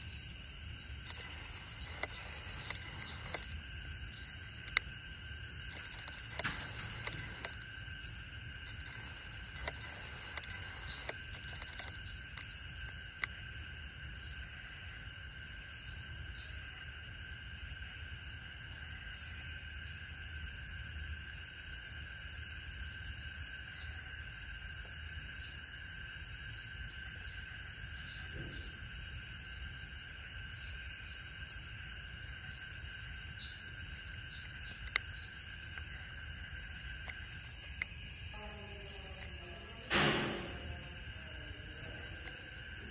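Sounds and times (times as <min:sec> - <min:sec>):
crickets trilling: 0:00.0 - 0:42.9
faint clicks: 0:04.5 - 0:13.4.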